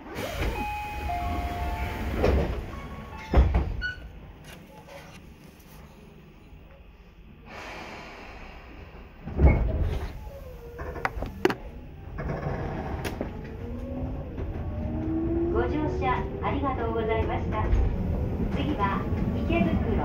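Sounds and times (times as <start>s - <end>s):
train wheels rumbling on rail: 7.6s - 20.0s.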